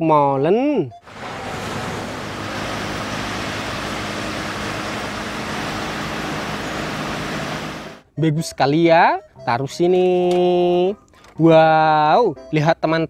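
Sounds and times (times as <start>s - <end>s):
road and wind noise: 1.0s - 8.0s
truck engine hum: 1.0s - 8.0s.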